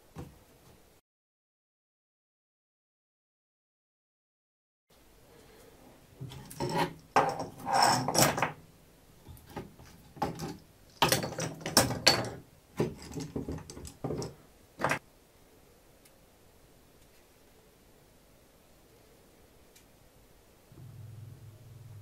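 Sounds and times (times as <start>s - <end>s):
metal clamps clicking and knocking: 9.5s - 15.0s.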